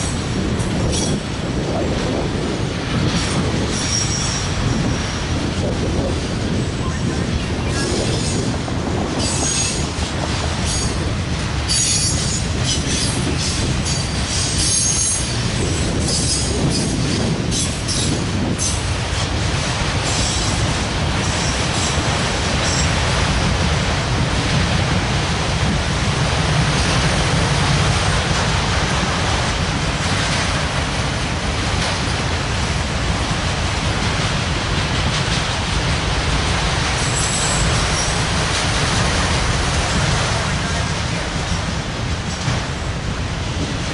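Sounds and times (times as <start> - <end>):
train wheels rumbling on rail: 0.0 - 43.9
wheel squeal: 3.8 - 5.2, 11.7 - 13.1.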